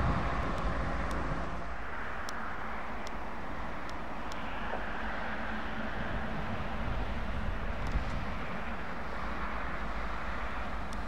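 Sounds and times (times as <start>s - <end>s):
heavy trucks passing: 0.0s - 11.0s.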